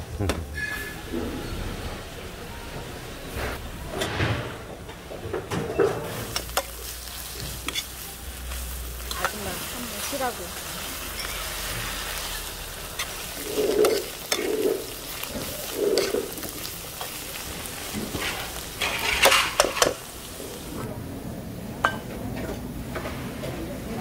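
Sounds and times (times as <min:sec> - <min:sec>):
vegetables sizzling in a pan: 0:05.8 - 0:20.9.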